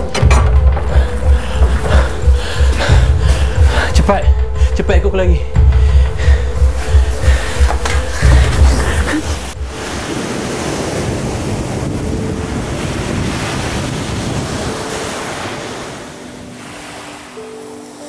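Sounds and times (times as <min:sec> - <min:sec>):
small waves washing on beach: 0:09.6 - 0:18.0.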